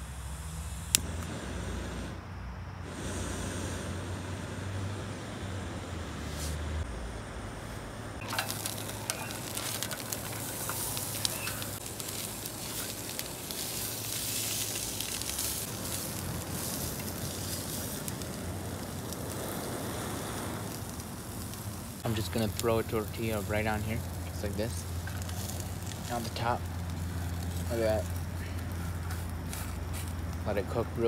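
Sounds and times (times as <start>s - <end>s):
meat sizzling in a frying pan: 8.2s - 30.4s.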